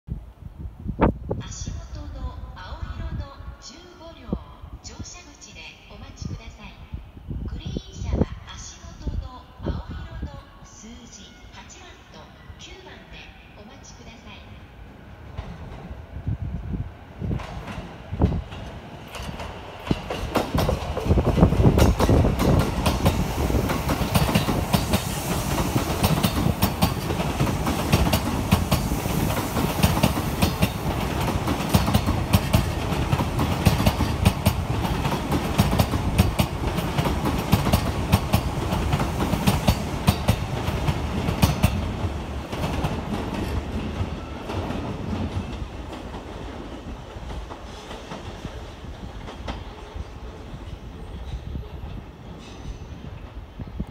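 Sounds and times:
electric train rumbling past: 0:11.2 - 0:53.9.

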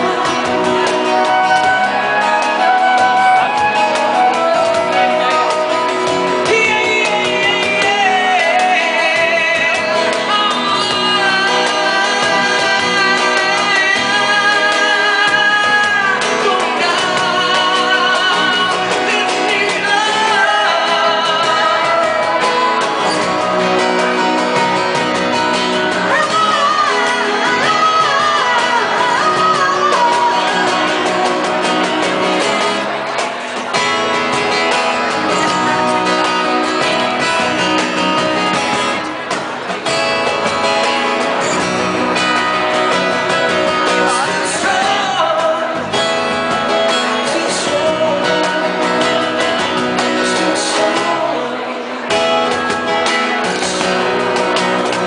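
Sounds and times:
man singing into microphone: 0:00.0 - 0:39.0, 0:41.2 - 0:55.0
acoustic guitar: 0:00.0 - 0:55.0
live band accompaniment: 0:00.0 - 0:55.0.

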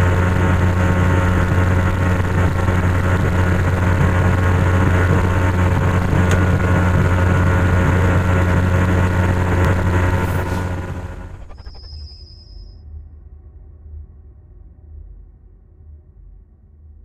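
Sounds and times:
boat engine running: 0:00.0 - 0:11.8.

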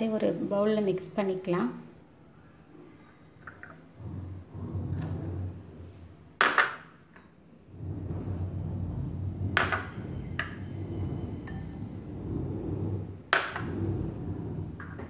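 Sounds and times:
steady low hum: 0:03.9 - 0:06.2, 0:07.6 - 0:15.0
glass bowl clinking: 0:11.3 - 0:11.9.

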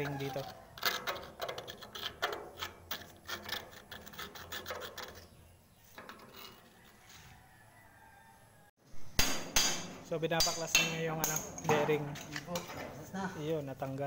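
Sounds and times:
metal tool scraping grease: 0:00.0 - 0:07.4.

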